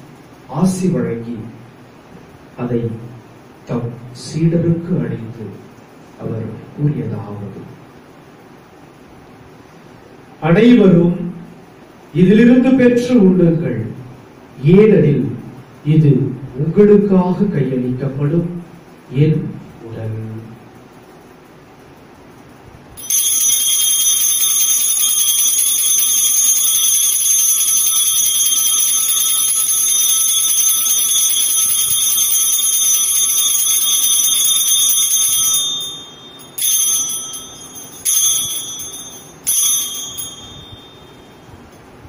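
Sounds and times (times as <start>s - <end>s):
altar bell ringing: 23.0s - 41.7s.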